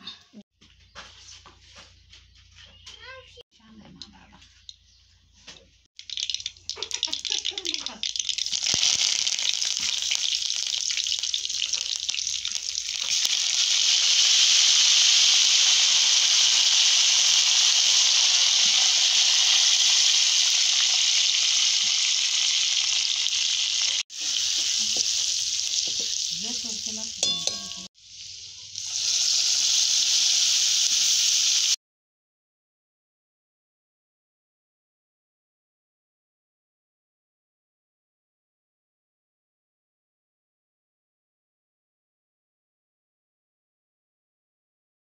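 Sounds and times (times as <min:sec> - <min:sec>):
hot oil sizzling loudly: 0:06.0 - 0:31.8.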